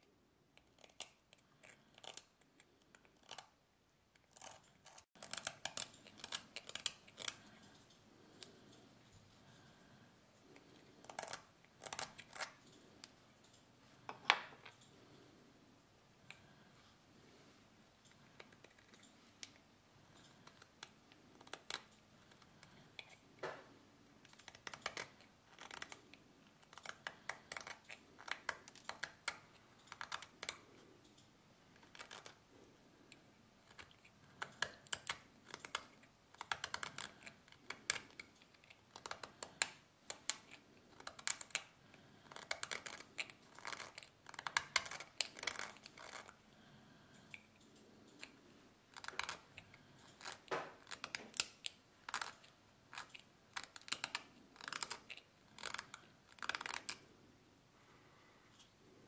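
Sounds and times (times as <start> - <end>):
blade shaving nut: 0.6 - 3.5, 4.2 - 8.6, 33.6 - 46.4.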